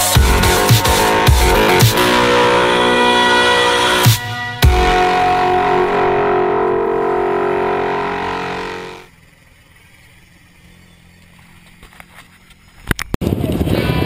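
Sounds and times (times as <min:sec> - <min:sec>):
electronic music: 0:00.0 - 0:09.1
loud dirt bike engine: 0:00.0 - 0:09.2
faint vehicle engine: 0:00.0 - 0:12.9.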